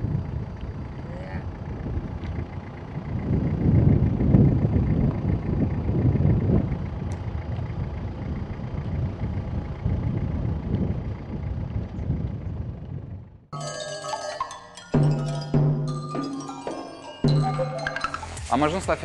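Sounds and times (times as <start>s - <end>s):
wind buffeting microphone: 0.0s - 13.5s.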